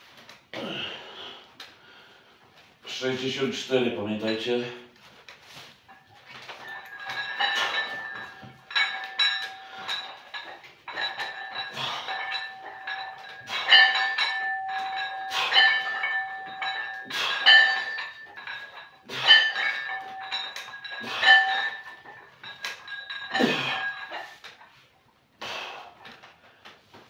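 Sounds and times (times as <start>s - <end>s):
weight plates clinking on barbell: 5.5s - 24.8s.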